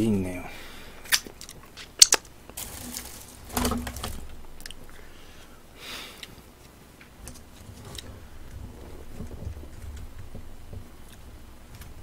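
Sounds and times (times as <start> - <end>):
short rustles: 2.6 - 4.5.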